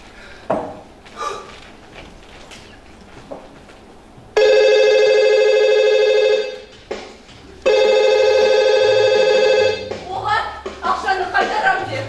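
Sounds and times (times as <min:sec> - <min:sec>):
telephone ringing: 0:04.4 - 0:06.7, 0:07.6 - 0:10.0.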